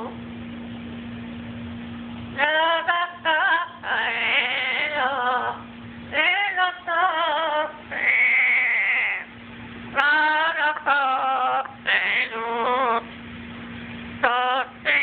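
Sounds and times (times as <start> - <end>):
faint steady hum: 0.0 - 15.0
parrot warbling song: 7.9 - 9.3, 11.1 - 13.0.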